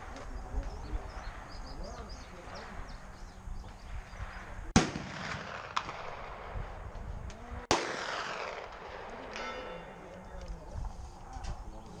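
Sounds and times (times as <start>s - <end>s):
rifle shots with echo: 3.8s - 6.8s, 7.7s - 10.0s
faint gunshot crack: 4.7s - 6.2s.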